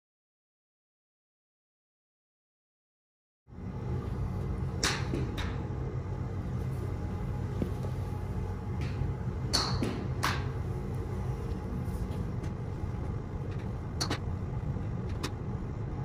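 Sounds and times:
steady low rumble: 3.5 - 16.0.

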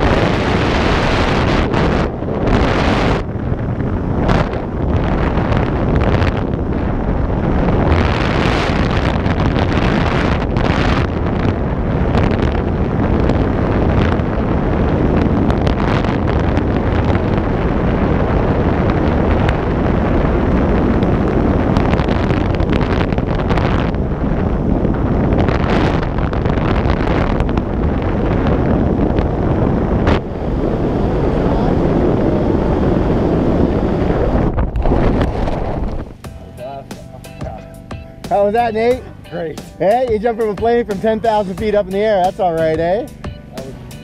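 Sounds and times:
wind buffeting microphone: 0.0 - 44.0
crackles: 34.2 - 39.0.

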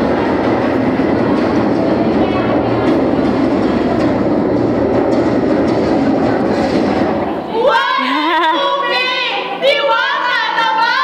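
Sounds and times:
rumbling noise with clatter: 0.0 - 7.5
voices singing: 7.5 - 11.0.

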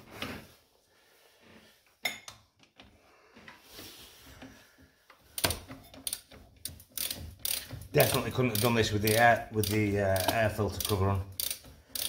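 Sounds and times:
ratchet wrench clinking on bolt: 5.4 - 12.0.

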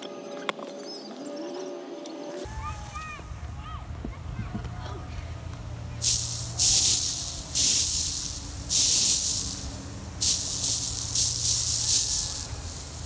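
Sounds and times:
sprinkler water hiss: 5.1 - 13.0.

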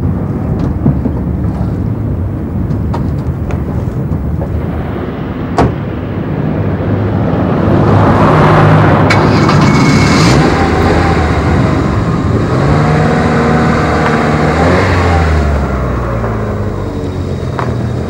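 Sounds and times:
car engine running: 0.0 - 18.0
car door shutting: 5.6 - 5.8.

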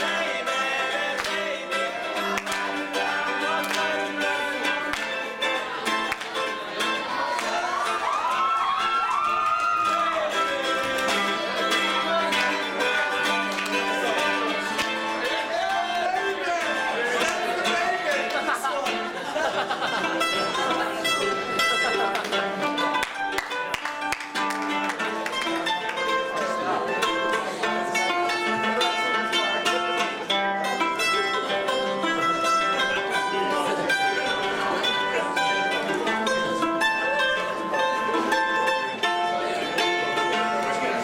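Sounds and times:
mandolin strummed: 0.0 - 41.0
men's voices: 9.8 - 21.2.

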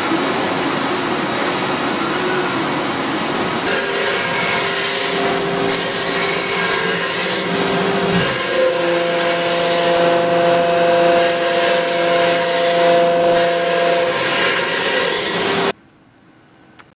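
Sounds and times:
machine tool squealing: 3.7 - 15.7.

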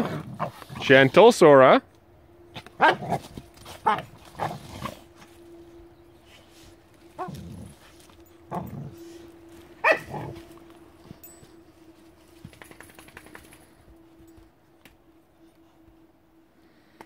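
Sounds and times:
dog barking: 2.8 - 3.2, 9.8 - 10.4.

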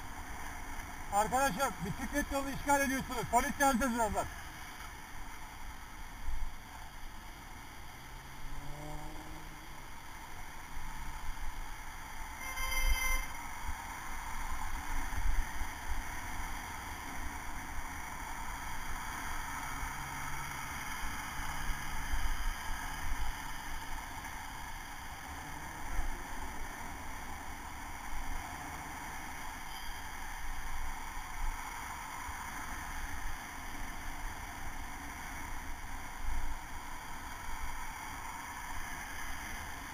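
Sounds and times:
passing car traffic: 0.0 - 39.9
short high pitched beep: 12.4 - 13.4.

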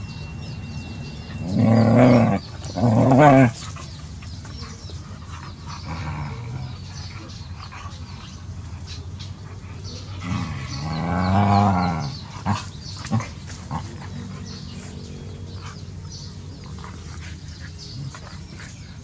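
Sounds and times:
dog whining: 0.0 - 3.8.

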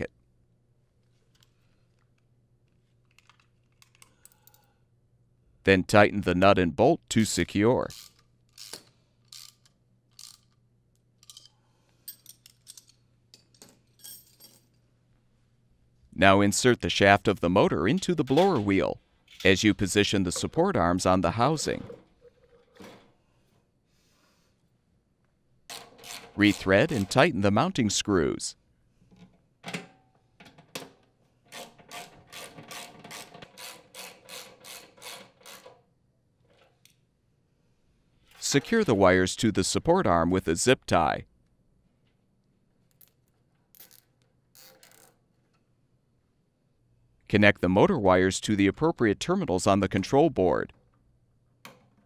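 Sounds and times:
socket ratchet clicking: 7.9 - 10.6.

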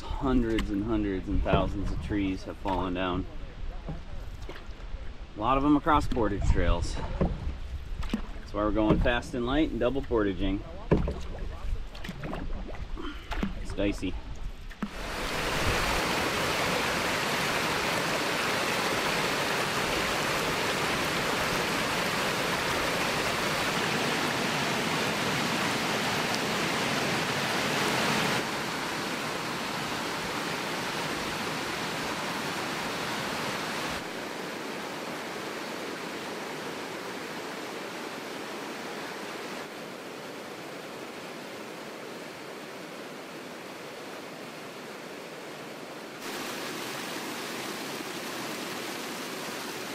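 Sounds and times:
waterfall rushing: 14.9 - 49.9.

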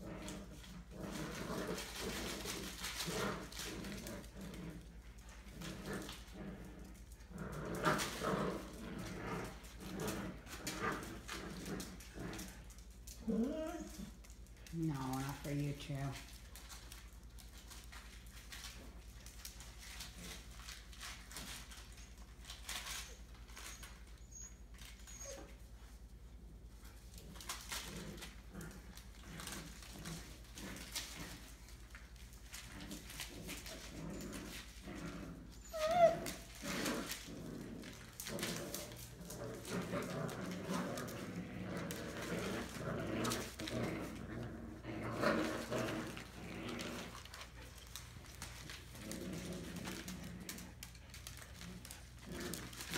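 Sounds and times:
puppies scuffling and pattering: 0.0 - 52.9
puppy squeaks: 35.6 - 36.4.

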